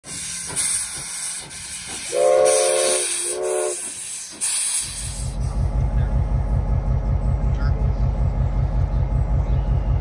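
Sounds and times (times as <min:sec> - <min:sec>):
steam hissing from cylinder cocks: 0:00.0 - 0:05.7
steam locomotive whistle: 0:00.6 - 0:05.2.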